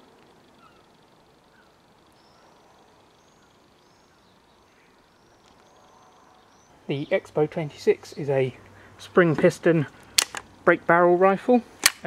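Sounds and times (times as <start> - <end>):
faint bird chirps: 0.0 - 7.2.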